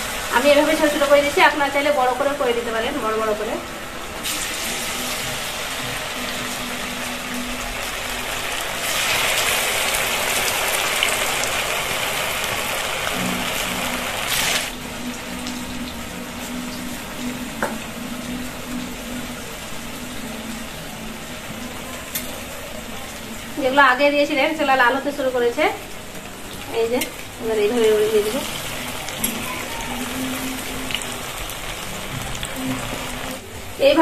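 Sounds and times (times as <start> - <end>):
food deep-frying in hot oil: 0.0 - 3.5, 4.2 - 34.0.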